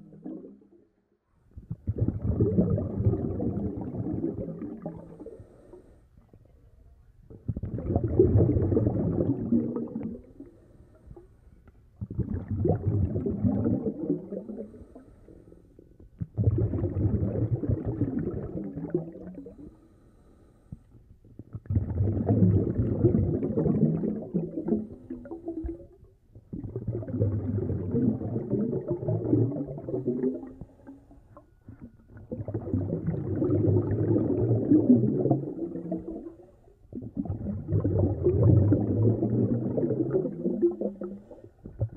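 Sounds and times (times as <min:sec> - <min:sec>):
exhaled bubbles underwater: 0:00.0 - 0:00.8, 0:01.5 - 0:06.5, 0:07.2 - 0:11.3, 0:12.0 - 0:19.8, 0:21.2 - 0:41.9
diver breathing through regulator: 0:19.5 - 0:20.9.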